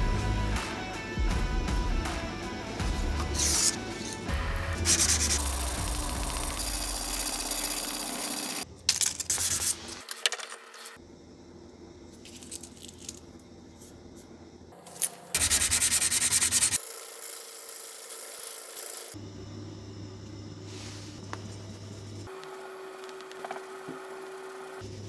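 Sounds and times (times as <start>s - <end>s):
sanding a metal blade: 4.8s - 8.6s, 15.4s - 19.2s.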